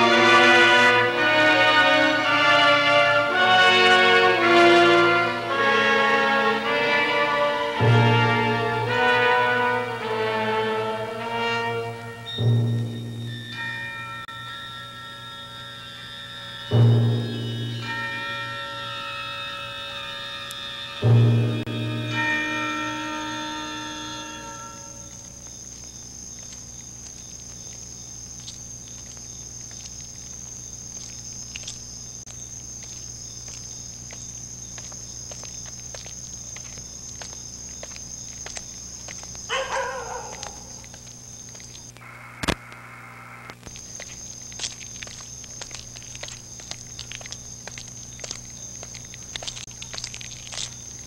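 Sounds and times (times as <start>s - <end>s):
crickets chirring: 0.0s - 51.0s
low hum: 0.0s - 51.0s
footsteps: 19.8s - 42.0s, 43.5s - 51.0s.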